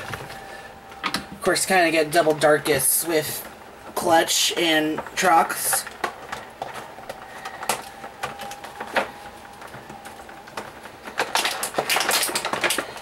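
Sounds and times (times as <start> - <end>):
packaging handled: 5.0 - 13.0
plastic toy parts clicking: 10.5 - 13.0.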